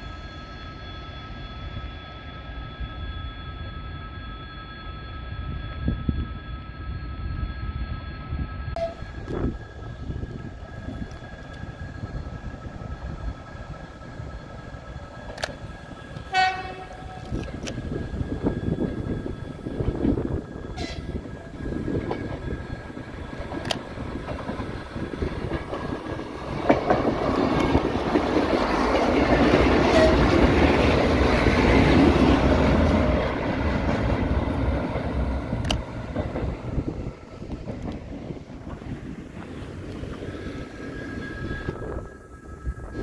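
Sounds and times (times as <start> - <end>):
diesel train passing: 0.0 - 43.0.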